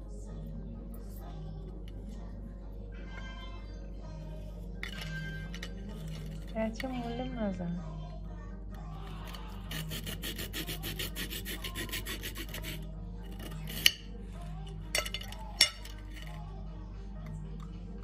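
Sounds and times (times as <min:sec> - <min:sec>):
knife sawing through biscuit: 0:09.1 - 0:14.0.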